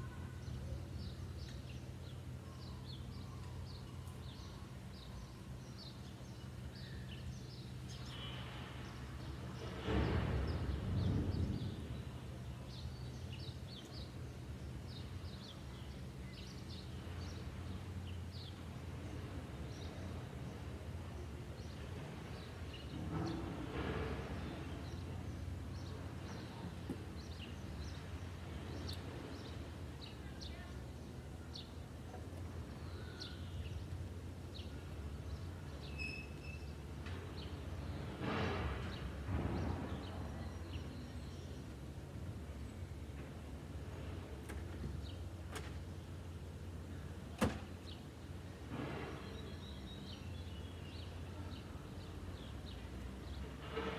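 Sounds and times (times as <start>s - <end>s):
small birds chirping: 24.2s - 38.2s, 47.8s - 53.6s.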